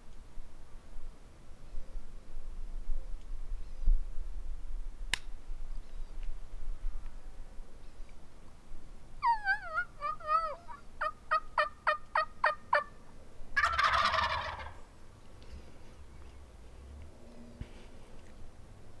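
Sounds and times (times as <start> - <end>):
turkey clucks: 9.2 - 13.0, 13.6 - 14.9
turkey gobbling: 9.2 - 13.0, 13.6 - 14.9
turkey yelps: 9.2 - 13.0, 13.6 - 14.8.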